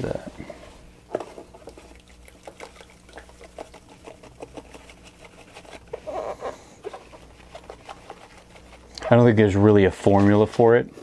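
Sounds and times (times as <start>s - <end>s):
faint steady hum: 0.0s - 11.0s
powder ticking and rustling into water: 1.2s - 6.0s.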